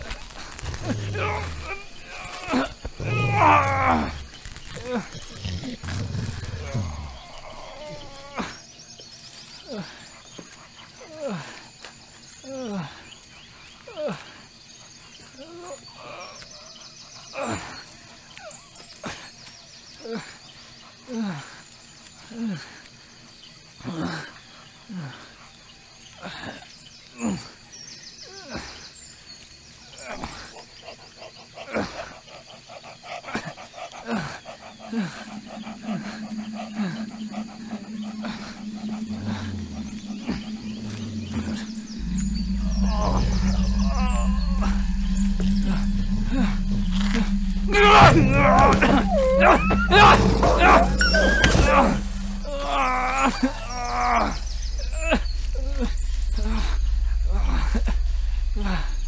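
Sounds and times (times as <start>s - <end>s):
low drone: 0.0s - 8.3s, 34.4s - 59.0s
high chirping: 34.6s - 59.0s
downward-swooping tones: 34.9s - 59.0s
short low hums: 35.0s - 59.0s
man groaning in pain: 47.7s - 54.4s.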